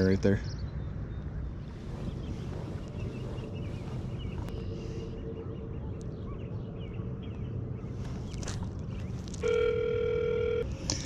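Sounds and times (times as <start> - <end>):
wind rumbling on microphone: 0.0 - 9.6
phone ringing tone: 9.4 - 10.7.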